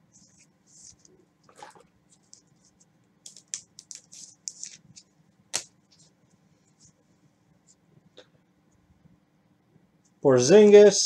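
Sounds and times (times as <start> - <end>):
cards rustling: 0.2 - 6.1.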